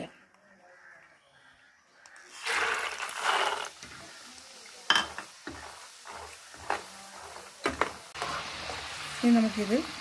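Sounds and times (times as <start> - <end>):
peanuts sizzling in hot oil: 2.0 - 10.0
metal ladle knocking on pan: 4.9 - 5.6.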